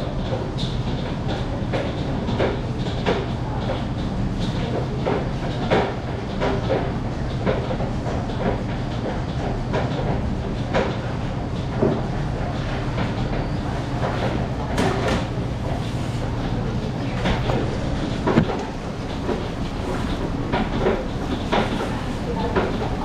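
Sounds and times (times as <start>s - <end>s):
low machine hum: 0.0s - 23.0s
kitchen clatter and knocks: 17.1s - 23.0s.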